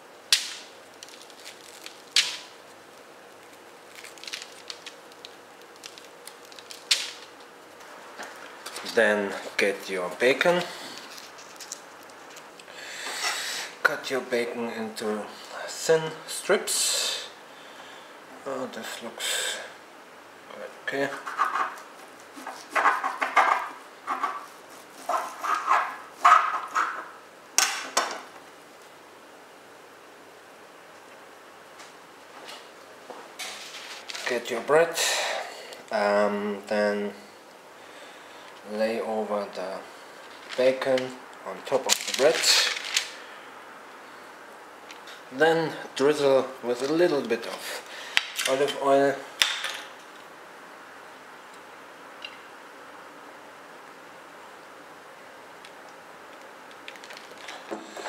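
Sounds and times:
bread pieces dropped on baking paper: 0:00.3 - 0:02.6, 0:03.5 - 0:07.4
bread tearing with soft crackling: 0:00.8 - 0:08.7.

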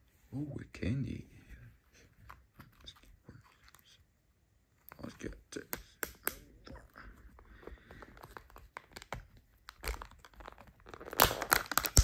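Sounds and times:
foil wrapper crinkling and tearing: 0:08.2 - 0:12.0.

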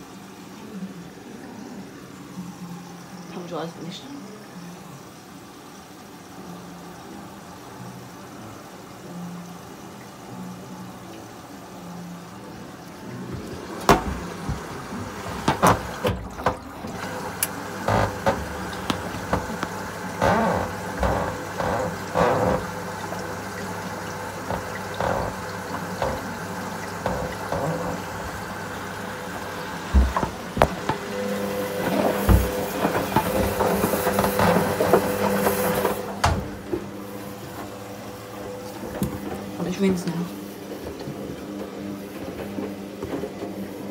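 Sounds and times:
washing machine motor hum: 0:00.0 - 0:43.9
water sloshing in drum: 0:12.3 - 0:43.9
knocks and clunks: 0:13.3 - 0:17.1, 0:17.8 - 0:22.8, 0:24.4 - 0:26.3.

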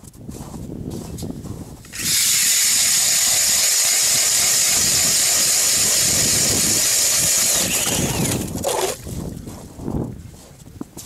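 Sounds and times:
drill boring through ice: 0:01.9 - 0:09.0.

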